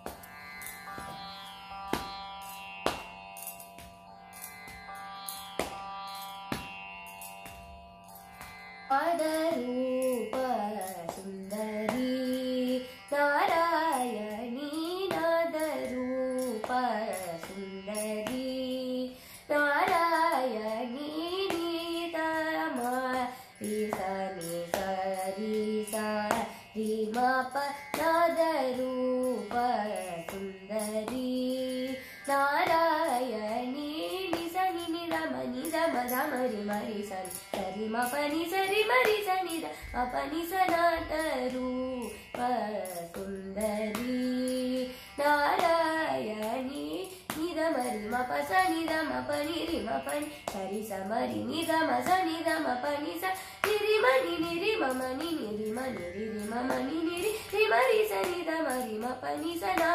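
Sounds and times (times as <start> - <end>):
girl singing with ornaments: 8.9 - 59.9.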